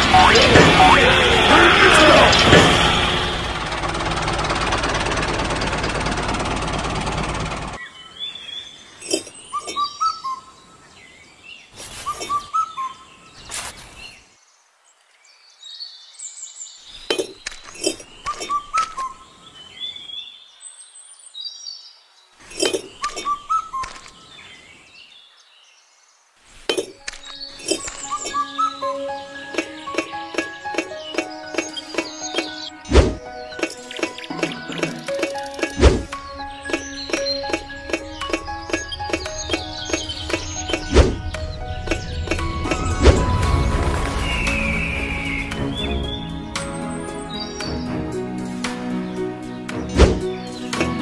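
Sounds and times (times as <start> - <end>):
loud rushing noise: 0.0 - 7.8, 37.6 - 46.9
small birds chirping: 7.1 - 43.4, 44.0 - 51.0
miniature bricks clicking into place: 17.1 - 19.0, 22.5 - 24.2.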